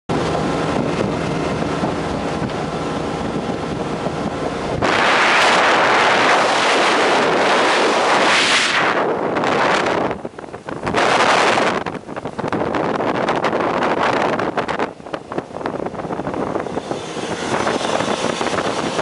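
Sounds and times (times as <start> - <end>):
boat engine drone: 0.1 - 19.0
water and hull noise: 0.1 - 19.0
wind rushing over microphone: 0.1 - 19.0.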